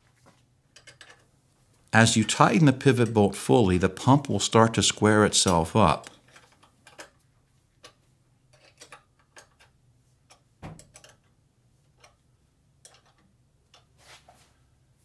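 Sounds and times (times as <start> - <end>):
wrench clicking and knocking on metal: 10.3 - 11.3.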